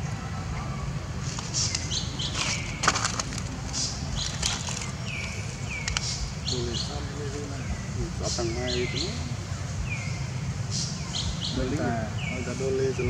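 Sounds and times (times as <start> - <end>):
dry leaves rustling and crackling: 1.2 - 6.3.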